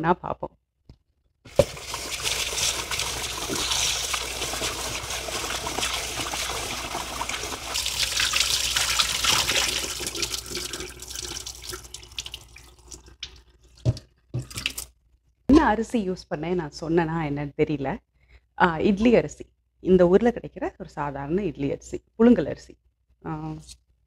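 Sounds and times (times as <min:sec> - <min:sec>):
kitchen tap running: 0:01.5 - 0:14.9
water splashing: 0:01.5 - 0:14.9.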